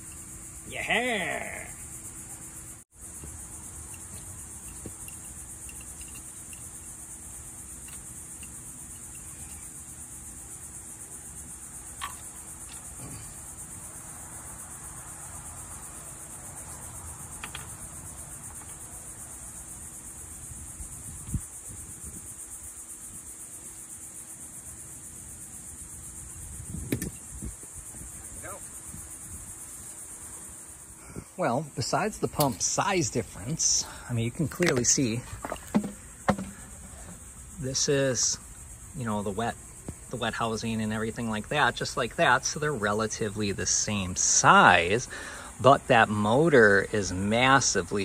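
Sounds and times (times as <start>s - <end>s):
high-pitched insect chorus: 0.0s - 48.0s
faint knocks and taps: 35.4s - 36.6s.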